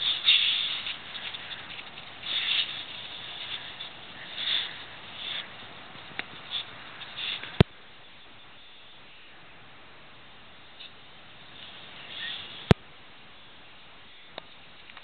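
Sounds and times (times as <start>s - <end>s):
dogs sniffing: 0.0s - 5.6s
dogs digging in snow: 0.0s - 7.6s
steady hiss: 0.0s - 15.0s.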